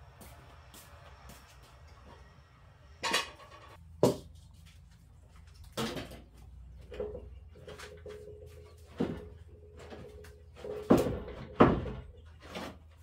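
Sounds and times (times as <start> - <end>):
metal pots clanking: 3.0 - 3.8.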